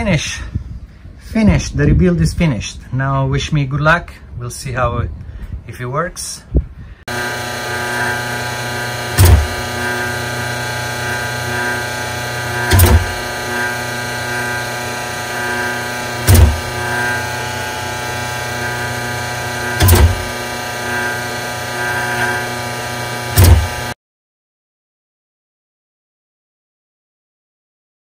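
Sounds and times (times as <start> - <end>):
pump motor hum: 7.1 - 24.0
heavy pump clunk: 8.8 - 14.6, 15.2 - 22.6, 23.2 - 24.0.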